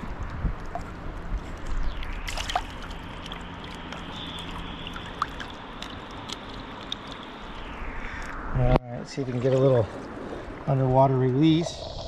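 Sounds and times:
river current rushing: 0.8s - 8.5s.

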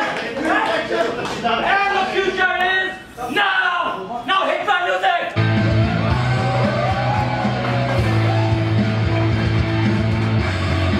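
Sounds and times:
music with heavy bass line: 5.4s - 10.9s.

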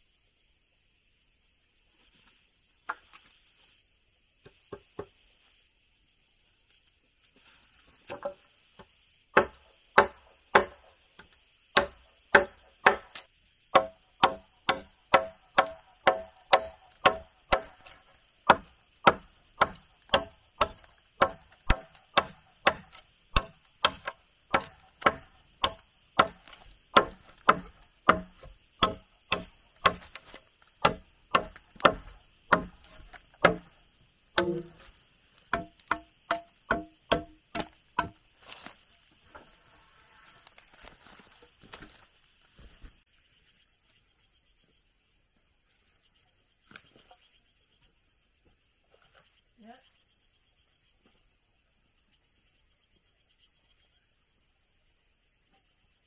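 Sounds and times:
hand tool striking wood: 8.1s - 33.8s, 34.4s - 38.7s.

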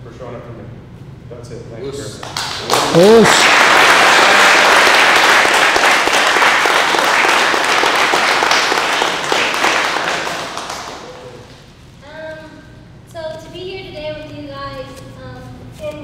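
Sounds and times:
crowd applauding: 2.2s - 11.6s.

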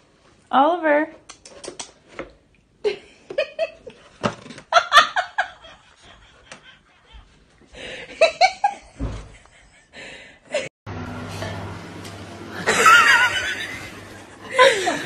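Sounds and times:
person laughing: 12.5s - 15.0s.

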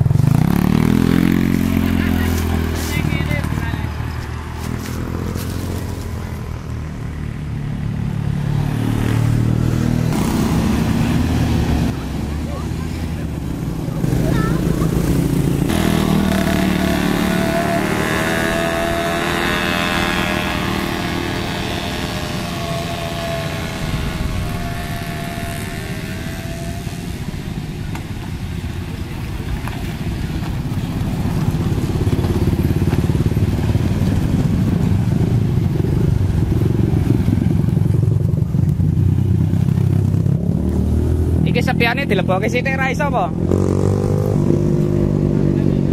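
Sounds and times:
motorcycle engine approaching: 0.0s - 45.9s
heavy diesel engine running: 10.1s - 39.1s.

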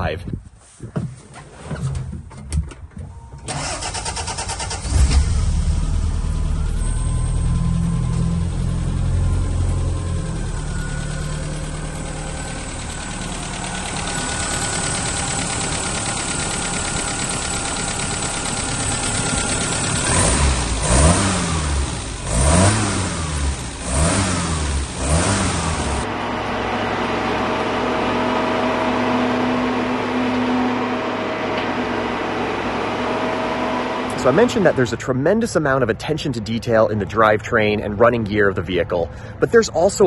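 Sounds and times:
car engine idling and revving: 3.5s - 35.1s
vehicle driving on road: 3.5s - 39.5s.

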